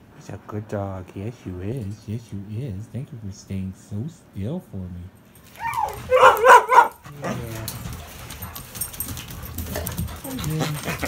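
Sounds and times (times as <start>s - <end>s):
dog whining: 5.5s - 8.6s, 9.5s - 11.0s
dog making low sounds: 5.6s - 8.5s, 9.7s - 11.0s.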